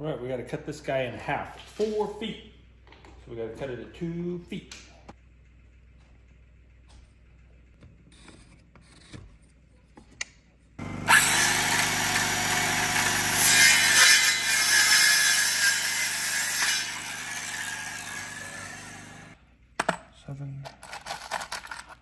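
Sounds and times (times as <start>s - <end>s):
circular saw cutting wood: 10.8s - 19.4s.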